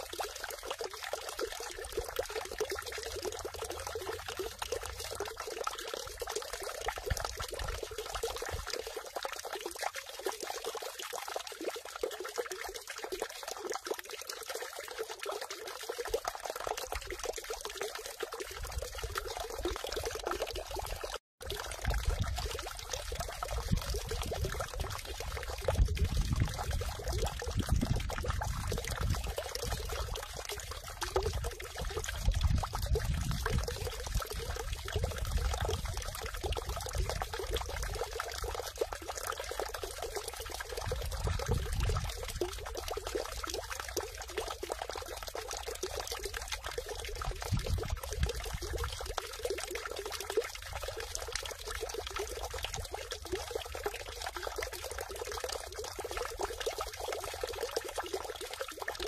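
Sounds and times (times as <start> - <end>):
water pouring into stone basin: 0.0 - 59.0.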